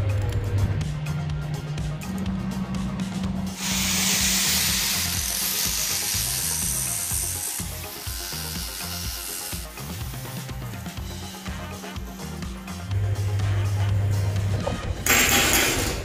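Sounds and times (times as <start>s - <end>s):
background music with steady beat: 0.0s - 16.0s
angle grinder grinding metal: 3.6s - 12.8s.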